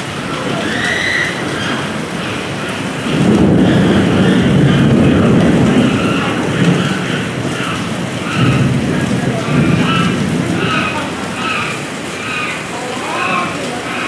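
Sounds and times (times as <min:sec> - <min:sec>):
heavy rain pouring: 0:00.0 - 0:14.0
deep rumble: 0:01.4 - 0:11.4.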